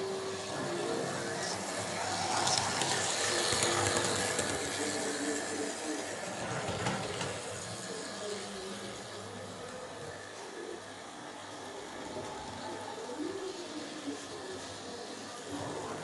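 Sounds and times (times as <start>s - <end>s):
electric motors whining: 0.0s - 16.0s
wheels clattering on rails: 6.4s - 8.3s.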